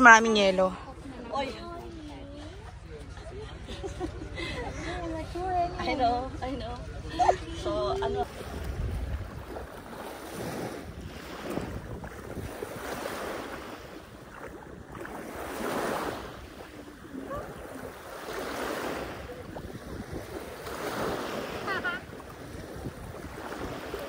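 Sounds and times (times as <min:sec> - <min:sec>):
wind rumble on microphone: 0:01.0 - 0:24.0
sea waves washing onto beach: 0:05.3 - 0:24.0.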